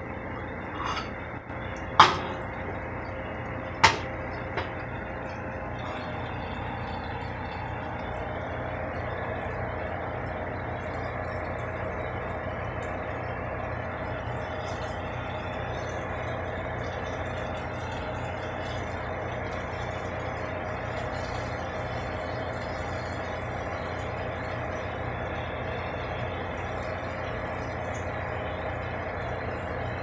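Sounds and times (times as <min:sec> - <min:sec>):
steady hum: 0:00.0 - 0:30.0.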